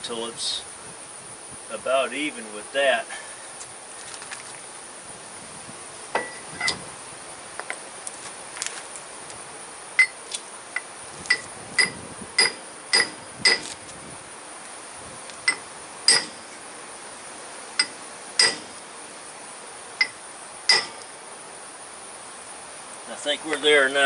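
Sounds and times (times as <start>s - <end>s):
hammer striking metal: 11.3s - 13.6s, 15.5s - 16.5s, 17.8s - 18.8s, 20.0s - 21.1s.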